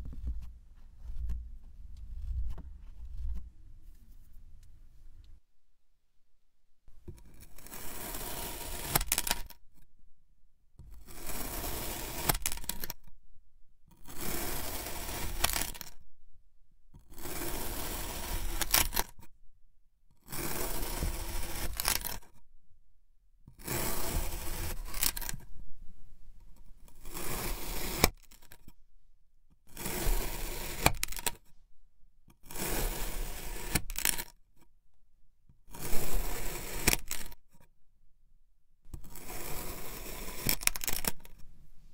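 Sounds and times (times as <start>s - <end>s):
blade slicing kinetic sand: 7.6s - 9.5s, 11.0s - 12.9s, 14.1s - 15.9s, 17.1s - 19.1s, 20.3s - 22.3s, 23.6s - 25.3s, 27.0s - 28.5s, 29.7s - 31.4s, 32.4s - 34.2s, 35.7s - 37.4s, 39.0s - 41.0s.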